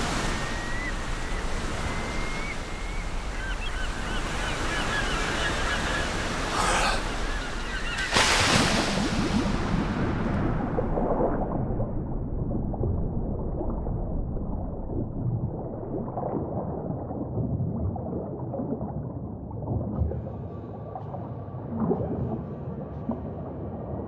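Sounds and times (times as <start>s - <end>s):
muffled underwater water rumbling: 8.5s - 24.0s.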